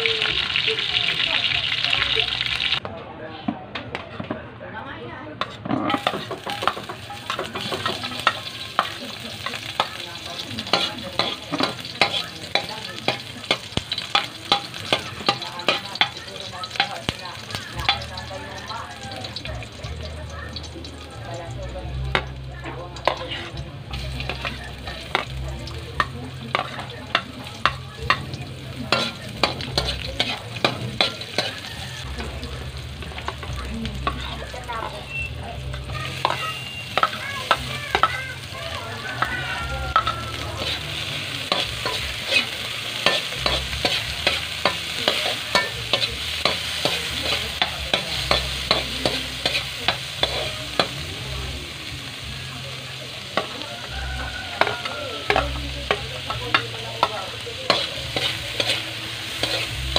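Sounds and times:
food sizzling in hot oil: 0:00.0 - 0:02.8, 0:05.8 - 0:59.9
metal spatula scraping a wok: 0:05.4 - 0:18.0, 0:23.0 - 0:25.4, 0:26.0 - 0:32.2, 0:32.8 - 0:51.0, 0:53.0 - 0:59.9.

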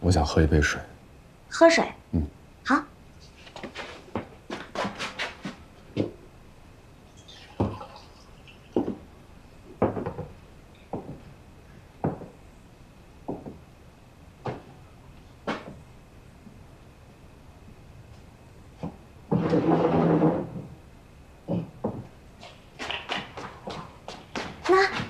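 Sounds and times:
footsteps on hard floor: 0:03.5 - 0:06.2, 0:10.9 - 0:11.3, 0:12.0 - 0:12.3, 0:23.2 - 0:25.0.

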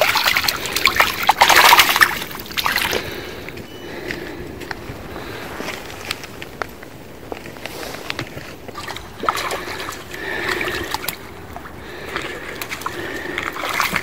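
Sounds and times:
water sloshing and dripping: 0:00.0 - 0:03.3, 0:08.0 - 0:14.0.

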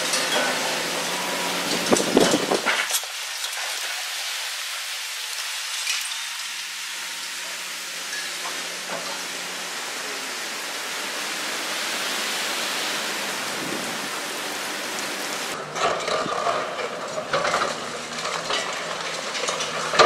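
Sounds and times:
steady hiss: 0:00.0 - 0:15.6.

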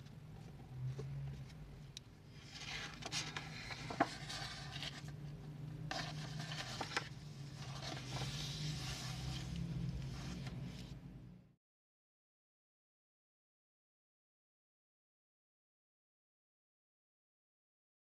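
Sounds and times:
notebook pages rustling: 0:02.3 - 0:11.0.

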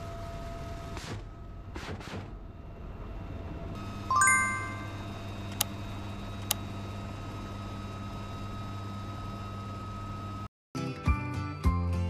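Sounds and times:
bright chime: 0:04.1 - 0:05.0.

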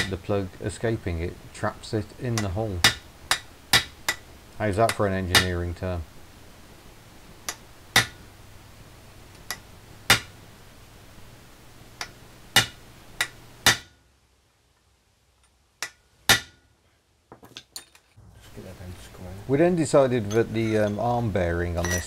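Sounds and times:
hammer striking chisel on metal: 0:02.3 - 0:05.6, 0:07.5 - 0:08.2, 0:09.4 - 0:10.3, 0:12.0 - 0:14.0, 0:15.8 - 0:16.6, 0:21.8 - 0:22.0.

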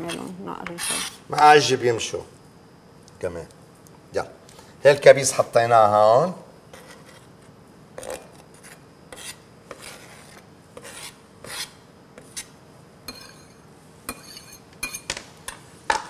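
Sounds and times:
knife scraping cutting board: 0:00.7 - 0:01.3, 0:06.7 - 0:12.5, 0:13.1 - 0:15.1.

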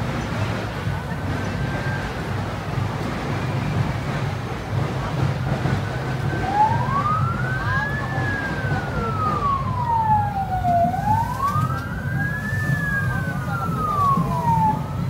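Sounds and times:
fire engine siren wailing: 0:05.7 - 0:15.0.

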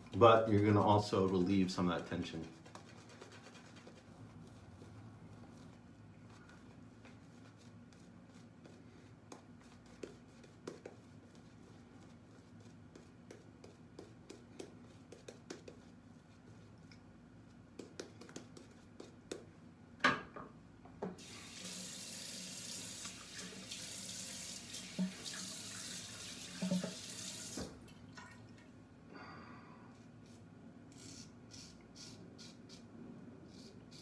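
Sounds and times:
shaving brush scratching: 0:00.7 - 0:05.8
sink tap running: 0:21.2 - 0:27.7.

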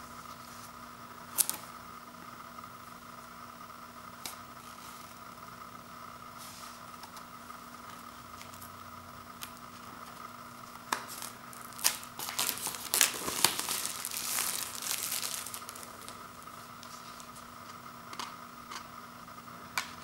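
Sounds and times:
plastic shrink-wrap tearing: 0:01.3 - 0:01.6, 0:10.8 - 0:17.4
plastic wrap crinkling: 0:09.4 - 0:17.6.

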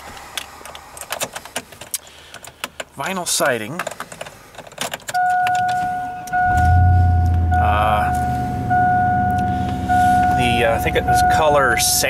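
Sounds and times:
dashboard warning tone: 0:05.2 - 0:12.0
car engine starting and idling: 0:06.3 - 0:12.0.

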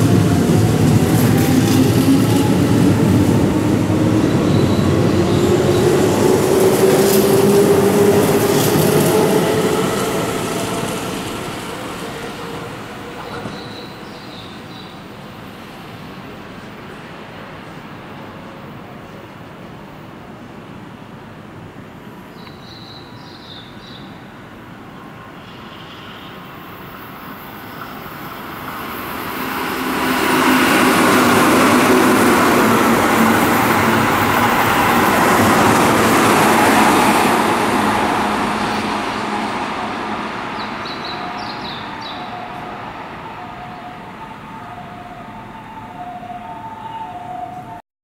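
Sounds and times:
train wheel and rail noise: 0:00.0 - 0:23.4, 0:24.0 - 0:47.8
two-tone emergency siren: 0:41.2 - 0:47.8.

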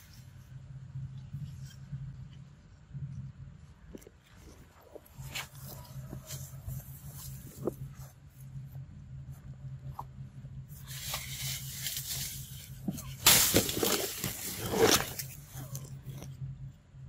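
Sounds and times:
leaves and dry stems rustling: 0:10.7 - 0:16.3.

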